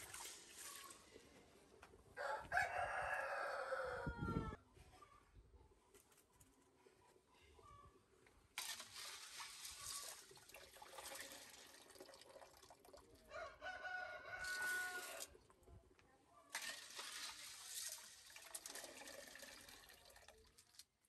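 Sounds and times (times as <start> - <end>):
water pouring into metal basin: 0.0 - 1.1, 8.6 - 13.3, 14.4 - 15.4, 16.5 - 21.0
rooster crowing: 2.2 - 4.6, 13.3 - 15.3.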